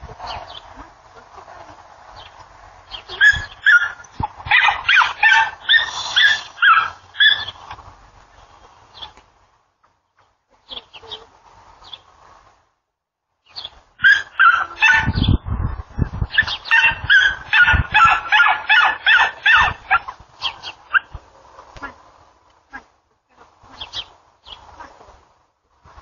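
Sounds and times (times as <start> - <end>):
loud overlapping animal calls: 2.9 - 7.7, 14.0 - 15.4, 16.3 - 21.2.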